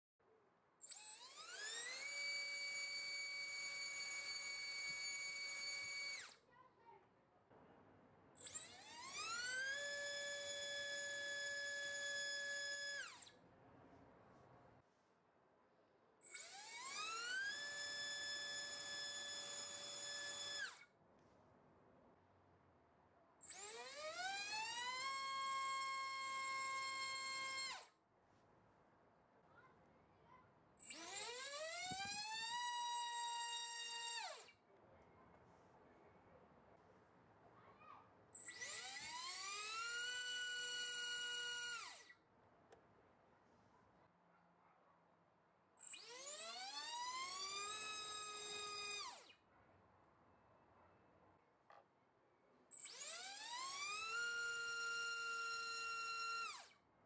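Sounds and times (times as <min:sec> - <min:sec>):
electric motor high whine: 0:00.8 - 0:06.4, 0:08.4 - 0:13.3, 0:16.2 - 0:20.8, 0:23.4 - 0:27.9, 0:30.8 - 0:34.5, 0:38.4 - 0:42.1, 0:45.8 - 0:49.3, 0:52.8 - 0:56.8.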